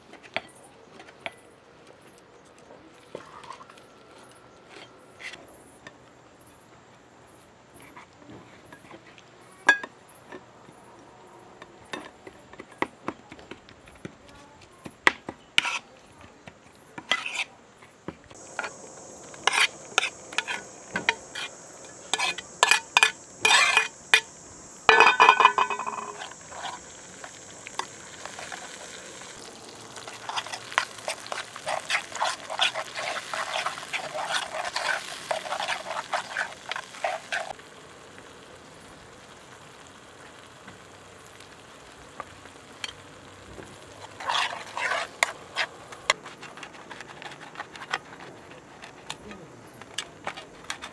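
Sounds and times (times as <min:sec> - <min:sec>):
metal spoon scraping a metal plate: 0:17.1 - 0:17.5, 0:19.4 - 0:24.3, 0:24.9 - 0:26.8, 0:30.2 - 0:37.5, 0:44.1 - 0:45.7
sauce sizzling in a pan: 0:18.3 - 0:49.1
ringing metal clang: 0:24.9 - 0:26.2.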